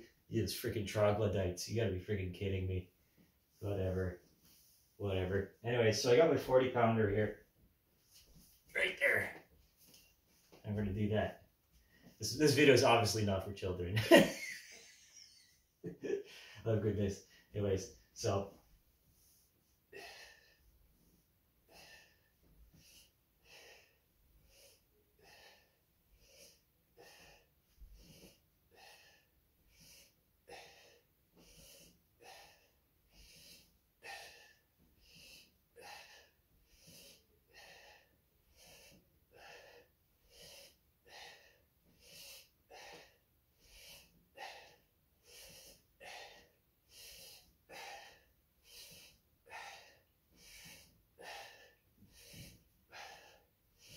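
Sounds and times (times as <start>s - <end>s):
man breathing hard: 19.9s - 20.7s, 21.7s - 53.9s.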